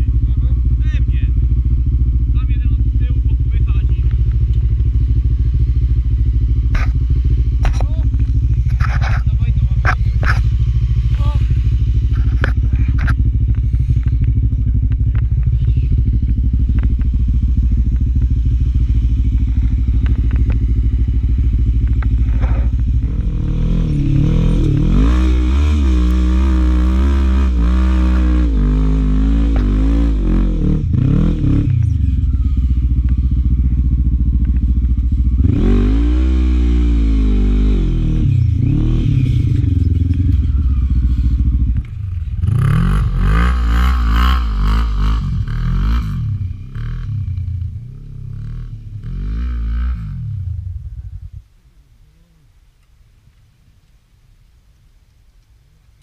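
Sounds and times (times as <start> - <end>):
quad engine revving: 0.0 - 51.0.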